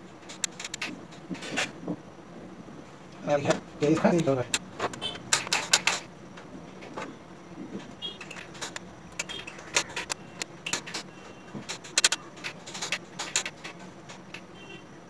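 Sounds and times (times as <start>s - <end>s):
plastic parts clicking and knocking: 3.5s - 14.5s.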